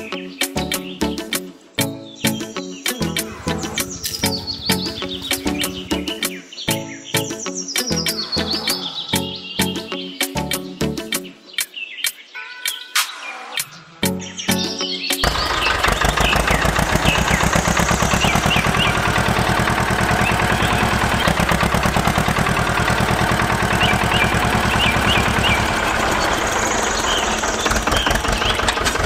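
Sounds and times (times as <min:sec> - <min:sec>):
birds chirping faintly: 0:00.0 - 0:29.0
tractor engine throbbing: 0:03.2 - 0:06.3, 0:15.2 - 0:29.0.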